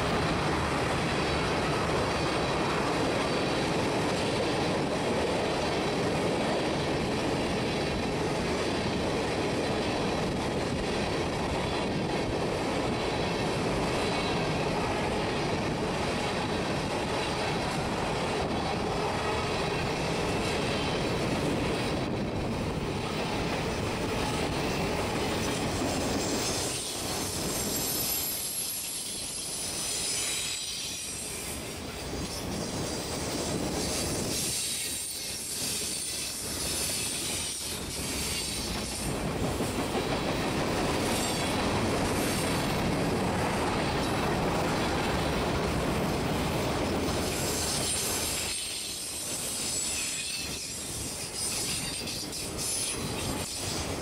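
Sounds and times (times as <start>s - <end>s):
train wheels rumbling on rails: 0.0s - 54.0s
high wheel squeal: 25.7s - 39.1s, 47.2s - 53.9s.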